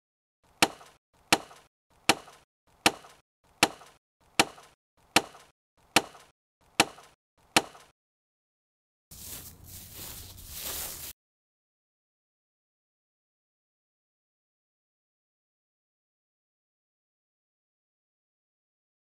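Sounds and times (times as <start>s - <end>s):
axe chopping wood: 0.5s - 7.9s.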